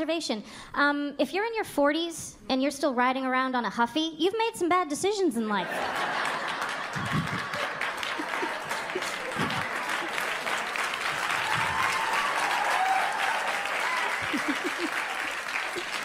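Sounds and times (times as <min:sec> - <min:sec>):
audience laughing: 0:05.6 - 0:16.0
audience clapping: 0:05.7 - 0:16.0.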